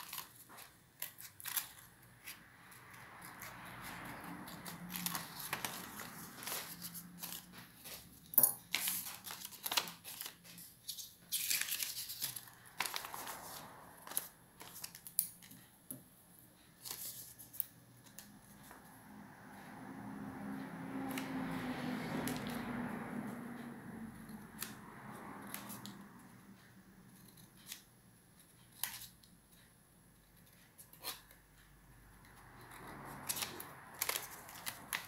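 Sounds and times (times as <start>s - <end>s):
paper rustling: 0.0s - 15.7s, 16.8s - 18.8s, 32.9s - 35.0s
scissors snipping paper: 0.0s - 15.7s, 24.2s - 26.4s, 27.1s - 29.3s, 30.2s - 31.4s, 32.1s - 35.0s.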